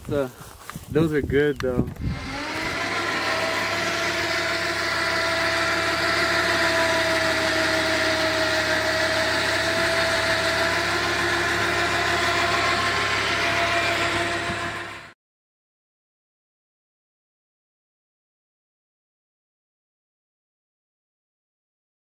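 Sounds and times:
diesel engine idling: 2.1s - 15.2s.

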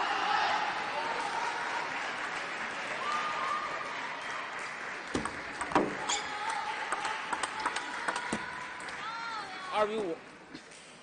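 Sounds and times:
sports hall hum: 0.0s - 11.0s
table tennis ball hits: 5.1s - 8.6s.

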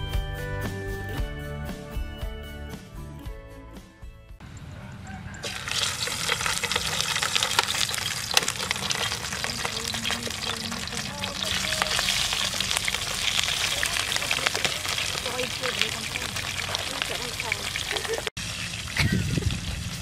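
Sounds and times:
fish sizzling in hot oil: 5.4s - 20.0s.

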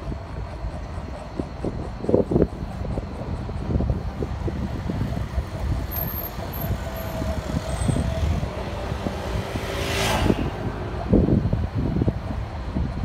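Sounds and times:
street traffic: 0.0s - 13.0s
wind buffeting microphone: 0.0s - 13.0s
vehicle passing close: 6.3s - 11.5s.

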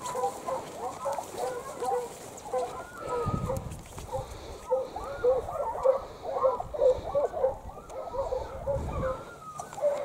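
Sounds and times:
hounds baying: 0.0s - 10.0s.

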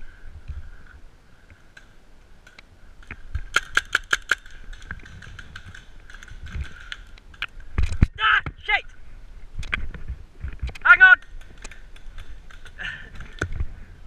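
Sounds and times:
paintball markers firing: 3.5s - 7.5s.

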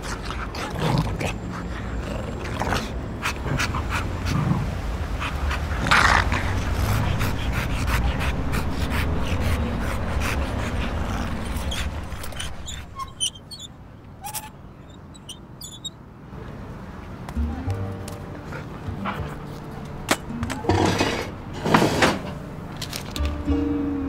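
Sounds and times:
dog panting heavily: 0.0s - 13.1s, 18.4s - 19.8s.

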